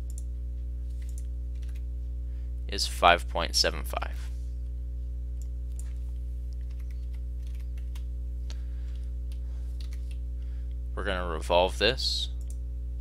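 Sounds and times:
electrical mains hum: 0.0 - 13.0
keyboard and mouse clicks: 1.0 - 1.8, 9.8 - 10.2.

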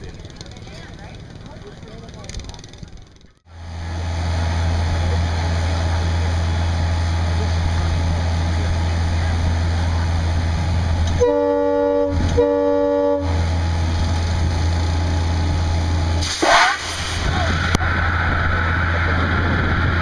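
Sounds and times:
low motor hum: 0.0 - 16.2
horn blowing: 11.1 - 13.4.

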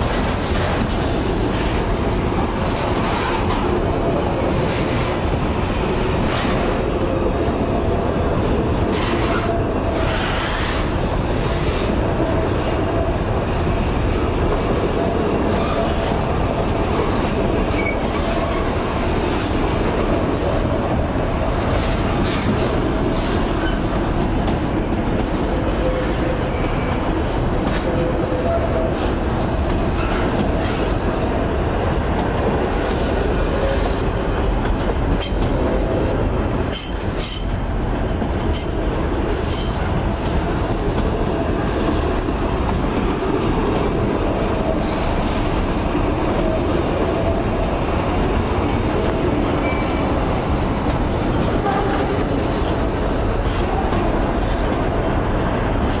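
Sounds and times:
freight train rolling past: 0.0 - 56.0
wheels clacking on rail joints: 14.4 - 56.0.

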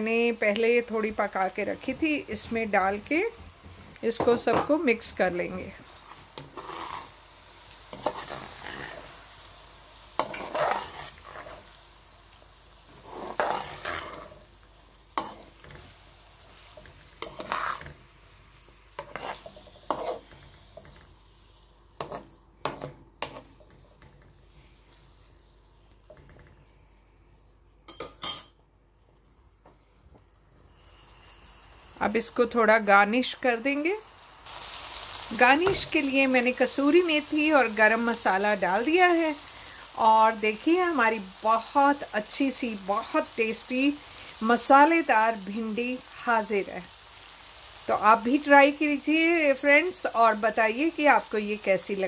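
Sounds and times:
oil sizzling: 0.0 - 52.0
spatula scraping a metal pan: 6.4 - 7.1, 7.9 - 9.1, 10.2 - 11.7, 12.9 - 14.4, 16.7 - 18.0, 19.0 - 20.9.

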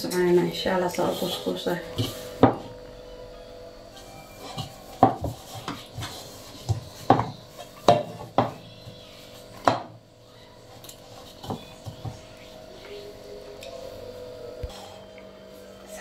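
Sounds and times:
faint steady hum: 0.0 - 16.0
dough kneading thumps: 1.0 - 2.8, 4.4 - 12.4.

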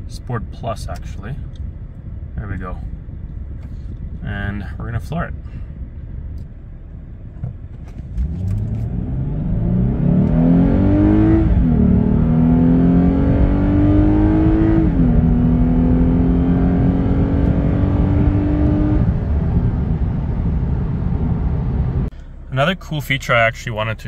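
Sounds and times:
car engine accelerating: 5.4 - 23.7.

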